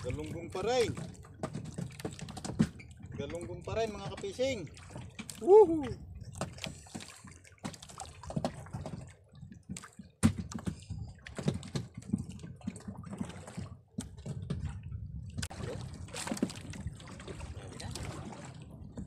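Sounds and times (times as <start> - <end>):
water sloshing against boat hull: 0.0 - 19.0
clicks and knocks of fishing line: 9.7 - 14.6.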